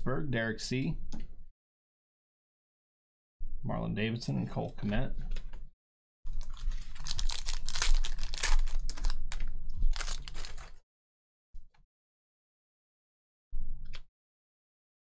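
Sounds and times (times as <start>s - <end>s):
foil card pack crinkling: 6.3s - 10.8s.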